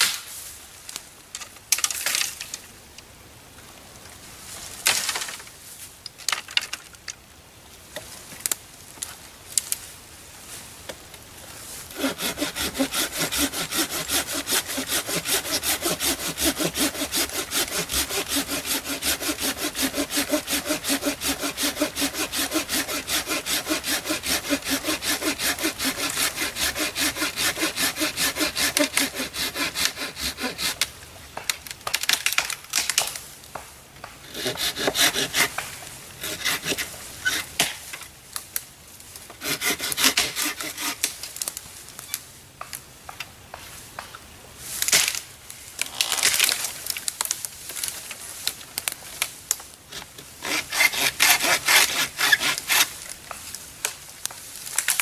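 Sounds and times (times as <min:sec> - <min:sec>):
hand saw cutting wood: 0:11.9 - 0:30.9, 0:34.2 - 0:37.8, 0:39.4 - 0:41.1, 0:49.9 - 0:53.4.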